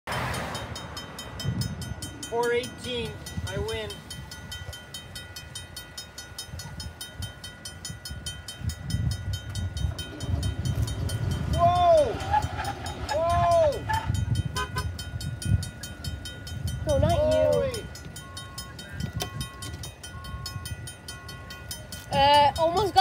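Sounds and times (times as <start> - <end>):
diesel locomotive rumble: 0.1 - 23.0
level-crossing bell ringing: 0.2 - 23.0
train horn blasts: 13.7 - 15.1.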